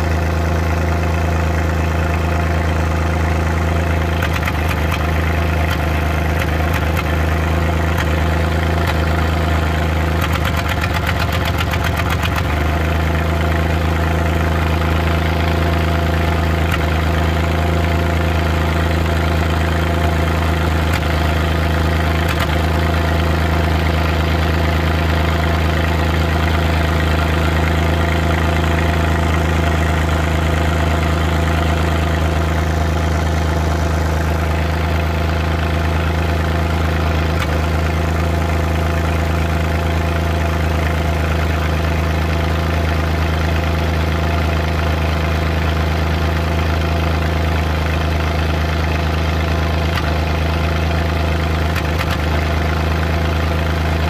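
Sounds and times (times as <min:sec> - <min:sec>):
engine idling: 0:00.0 - 0:54.0.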